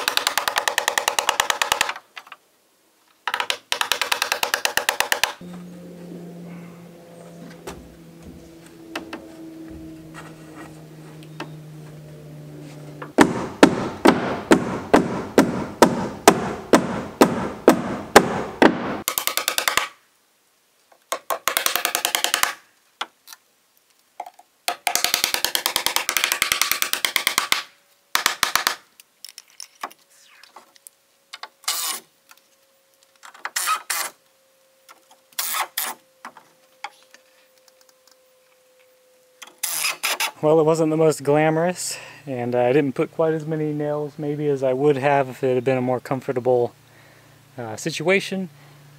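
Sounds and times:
sustained music tones: 5.4 - 19.0
steady drum beat: 13.2 - 19.0.

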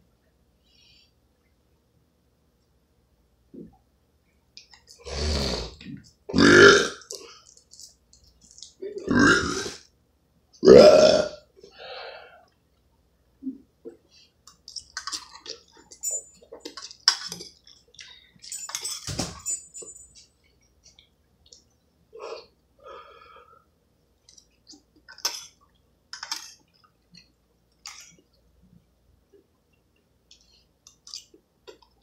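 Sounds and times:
man belching: 5.0 - 7.0, 9.0 - 9.8, 10.6 - 11.4.

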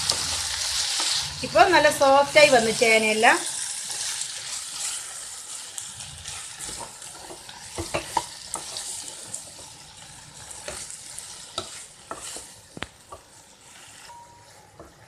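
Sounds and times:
masala sizzling in a wok: 0.0 - 15.0
spatula scraping and knocking pan: 6.2 - 9.8, 10.4 - 15.0.

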